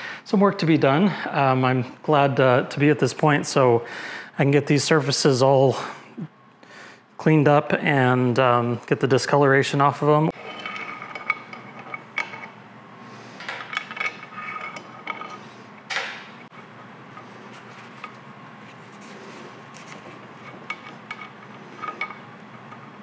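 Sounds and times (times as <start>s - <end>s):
metal parts clinking and knocking: 13.4s - 16.4s.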